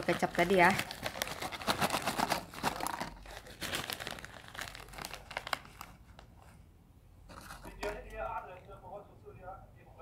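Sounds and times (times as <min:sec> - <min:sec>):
plastic chip bag crinkling: 0:00.0 - 0:06.3.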